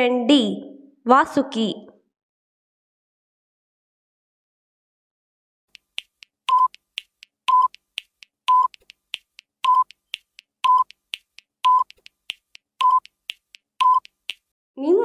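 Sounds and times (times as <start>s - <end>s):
quick clicking ticks: 5.7s - 14.5s
short electronic beeps: 6.5s - 6.8s, 7.5s - 7.8s, 8.5s - 8.8s, 9.6s - 10.0s, 10.6s - 11.0s, 11.6s - 12.0s, 12.8s - 13.1s, 13.8s - 14.2s.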